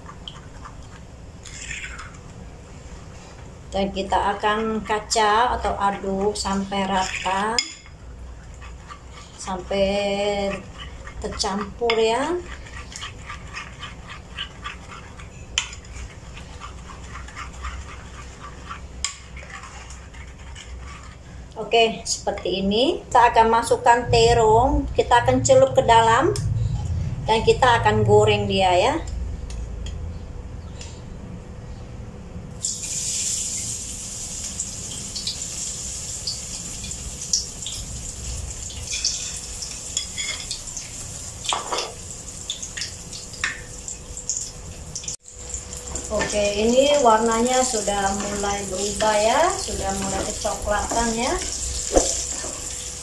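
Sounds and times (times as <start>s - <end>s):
utensil scraping through batter: 8.3s - 21.5s
food sizzling in oil: 32.6s - 53.0s
oil popping and crackling: 42.3s - 46.2s.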